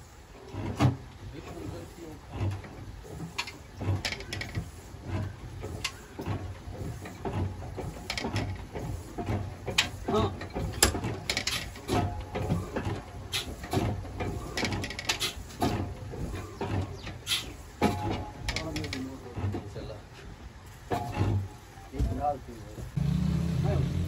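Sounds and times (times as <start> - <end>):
diesel engine turned over by hand: 0.4 - 21.6
metallic clicks and knocks: 2.4 - 19.8.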